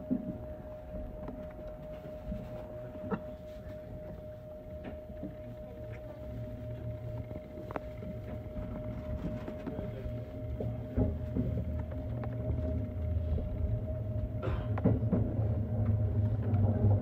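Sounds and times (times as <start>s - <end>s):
steady train hum: 0.0s - 17.0s
train wheels rumbling on track: 8.1s - 17.0s.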